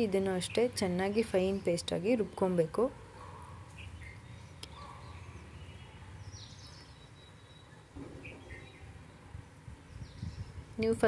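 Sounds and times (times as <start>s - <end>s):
faint bird chirps: 3.2s - 10.6s.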